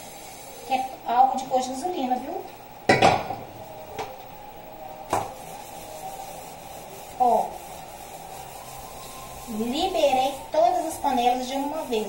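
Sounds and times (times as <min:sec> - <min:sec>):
metal pot being scrubbed: 0:05.4 - 0:12.0.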